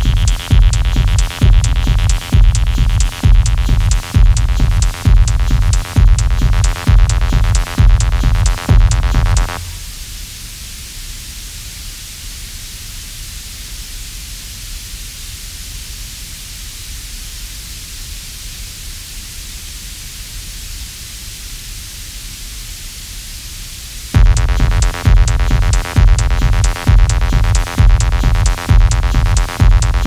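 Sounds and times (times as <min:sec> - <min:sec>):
low rumble: 0:00.0 - 0:10.0, 0:24.2 - 0:30.0
steady microphone hiss: 0:00.0 - 0:30.0.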